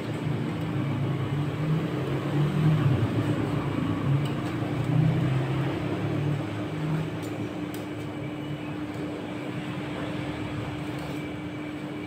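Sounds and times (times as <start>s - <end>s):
refrigeration unit humming: 0.0s - 12.0s.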